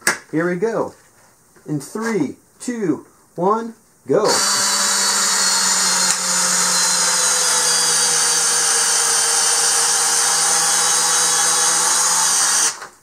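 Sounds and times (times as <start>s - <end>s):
drill driving bolt into wood: 4.3s - 13.0s.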